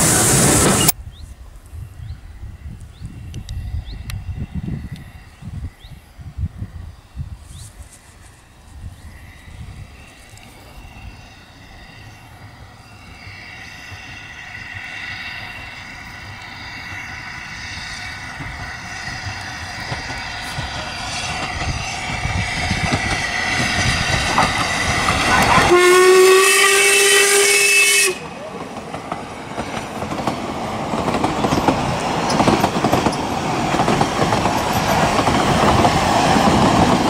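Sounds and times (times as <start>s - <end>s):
steam locomotive exhaust beats: 8.2s - 37.0s
steam whistle blast: 25.4s - 28.5s.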